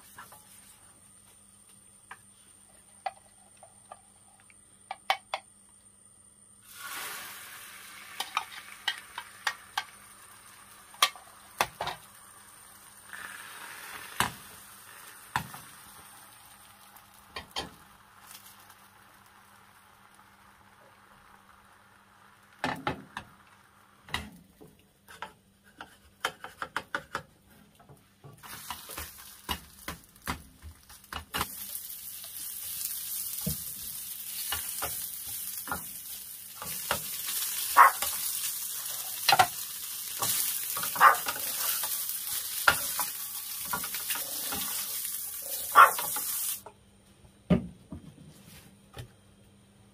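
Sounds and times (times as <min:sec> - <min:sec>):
egg sizzling in pan: 0:06.6 - 0:26.9, 0:28.2 - 0:46.7
fish cake frying and stirring: 0:06.6 - 0:46.7.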